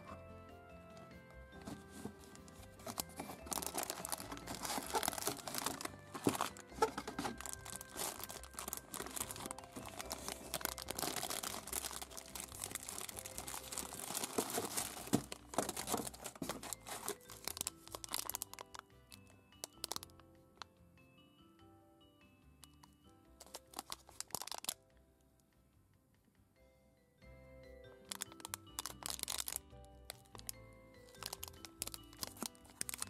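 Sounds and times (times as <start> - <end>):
soft background music: 0.0 - 33.0
plastic wrappers crinkling: 1.6 - 20.2, 23.4 - 24.8, 28.1 - 33.0.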